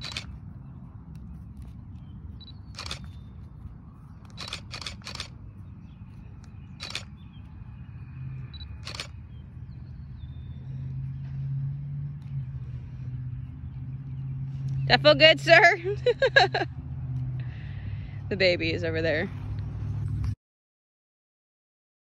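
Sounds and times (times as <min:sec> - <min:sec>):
steady low hum: 0:00.0 - 0:07.6
low outdoor rumble: 0:00.0 - 0:20.4
short sharp clicks: 0:04.3 - 0:05.3.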